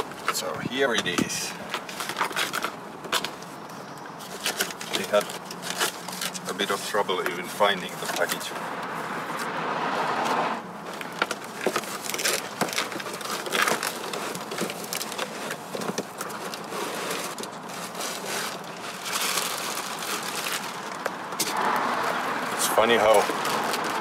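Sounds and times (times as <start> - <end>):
foam and plastic rustling: 0.0 - 9.4, 10.7 - 24.0
clicks and scrapes: 10.2 - 22.2.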